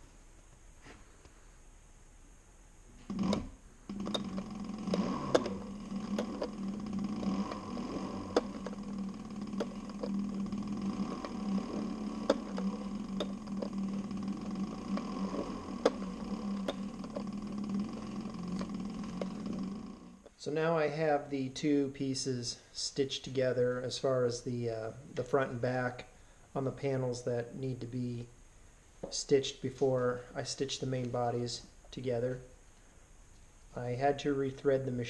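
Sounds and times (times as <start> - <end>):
sewing machine humming: 3.0 - 20.3
sewing machine sharp clicks: 3.1 - 19.7.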